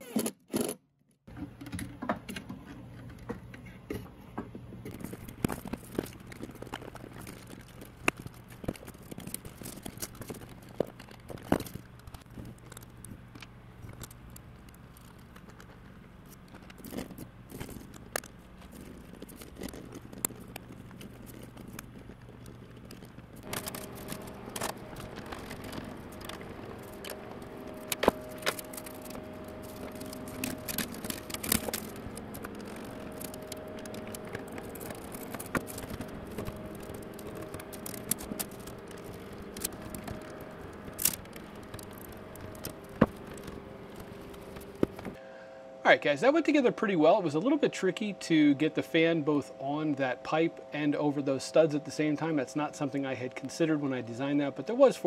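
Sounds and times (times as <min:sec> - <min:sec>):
multi-tone hum: 0:00.0 - 0:55.0
plastic fittings clicking and scraping: 0:04.8 - 0:45.2.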